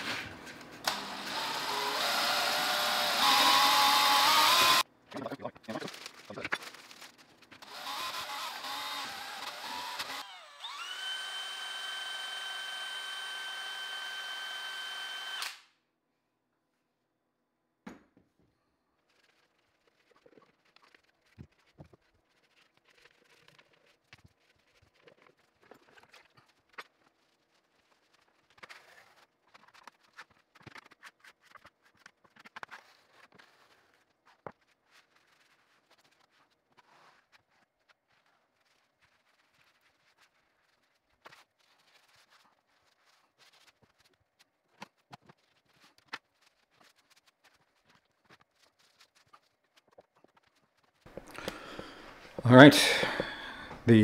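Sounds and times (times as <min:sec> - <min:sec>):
power drill mixer whining: 0:00.8 - 0:04.8, 0:07.6 - 0:15.6, 0:52.8 - 0:53.8.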